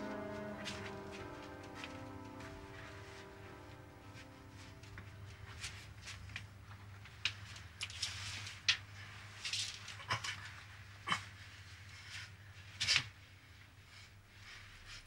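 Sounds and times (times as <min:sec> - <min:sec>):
low steady hum: 0:00.0 - 0:09.5.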